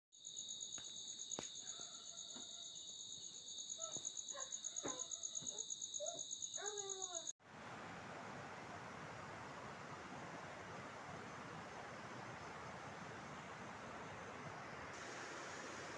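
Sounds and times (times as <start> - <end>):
insects trilling: 0.2 - 7.3.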